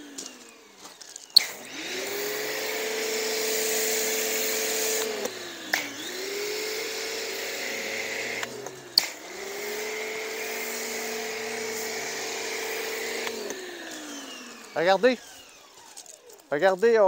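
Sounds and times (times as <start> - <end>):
pressure washer motor whine: 0.0 - 16.7
sharp click: 1.3 - 1.6, 8.4 - 9.2
spray hissing: 1.4 - 15.9.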